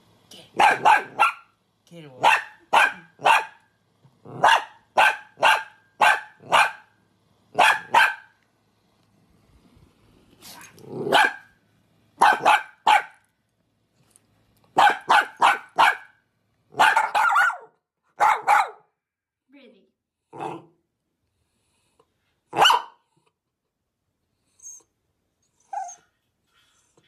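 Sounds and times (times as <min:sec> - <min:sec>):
dog barking: 0:00.6 - 0:01.6, 0:02.2 - 0:03.7, 0:04.3 - 0:08.4, 0:11.0 - 0:11.6, 0:12.2 - 0:13.2, 0:14.8 - 0:18.9, 0:22.5 - 0:23.0.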